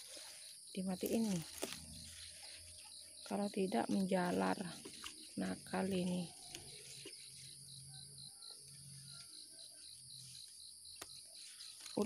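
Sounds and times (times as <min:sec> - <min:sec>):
leaves clicking: 0:00.0 - 0:07.6, 0:10.2 - 0:12.0
insects trilling: 0:00.0 - 0:12.0.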